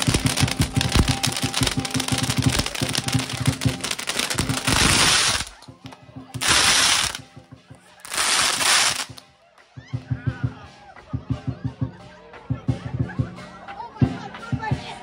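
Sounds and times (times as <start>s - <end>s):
firecracker blasts: 0.0s - 7.4s, 8.0s - 9.2s
firecrackers crackling: 0.0s - 9.2s.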